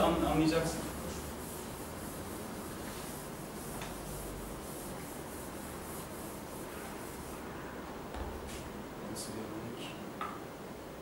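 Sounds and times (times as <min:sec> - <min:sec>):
eraser rubbing on chalkboard: 0:00.0 - 0:07.5.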